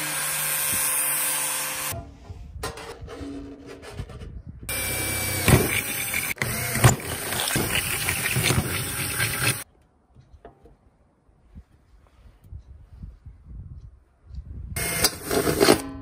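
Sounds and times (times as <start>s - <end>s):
cordless drill drilling metal: 4.7s - 9.6s.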